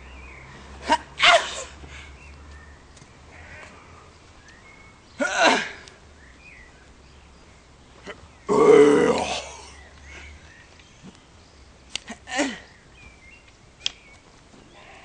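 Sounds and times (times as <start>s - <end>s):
person wordless vocal outbursts: 8.5s - 9.8s
sharp tick: 11.9s - 12.1s, 13.4s - 14.1s.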